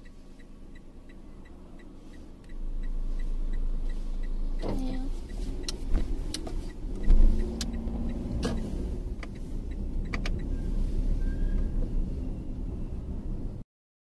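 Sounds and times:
car road and engine rumble: 0:00.0 - 0:13.6
sharp clicks: 0:04.6 - 0:10.5.

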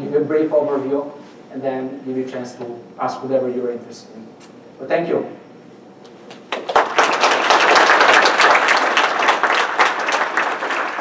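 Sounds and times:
audience applauding: 0:06.3 - 0:11.0.

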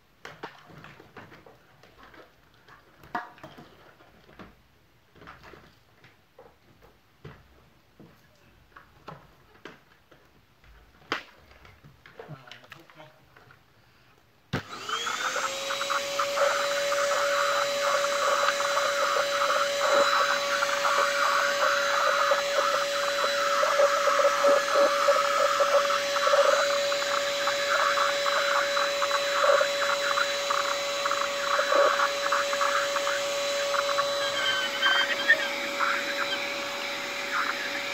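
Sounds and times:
handheld vacuum cleaner whining: 0:14.6 - 0:37.9
vacuum nozzle on tiled floor: 0:14.6 - 0:37.9.

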